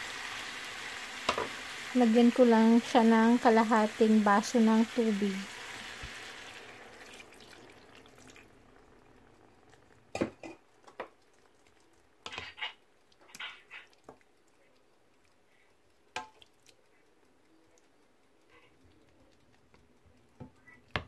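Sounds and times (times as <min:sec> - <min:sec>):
water sizzling in pan: 0:00.0 - 0:16.7
spatula knocking and scraping pan: 0:01.2 - 0:01.6, 0:12.2 - 0:13.9.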